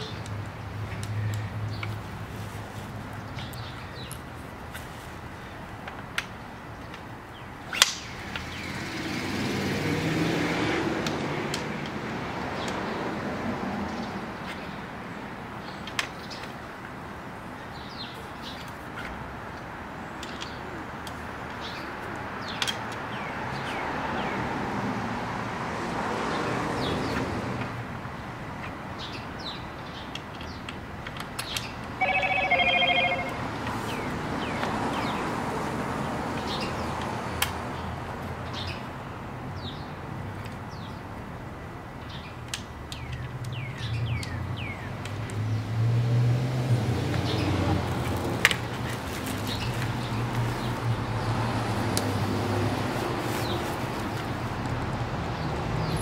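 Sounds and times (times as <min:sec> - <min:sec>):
vehicles passing slowly: 0:00.0 - 0:56.0
plastic wrapping rustling: 0:48.7 - 0:50.8, 0:52.9 - 0:54.3.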